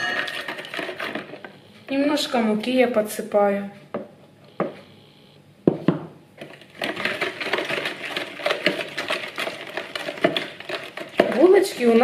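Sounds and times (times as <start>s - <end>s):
spoon scraping plastic bowl: 6.4s - 12.0s.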